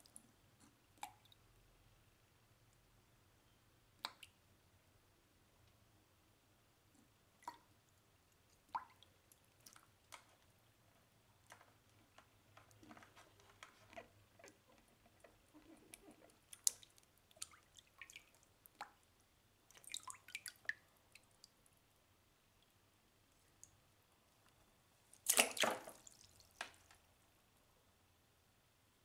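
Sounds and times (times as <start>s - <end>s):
water splashing in plastic basin: 11.4s - 19.0s, 19.7s - 20.8s, 25.2s - 26.9s.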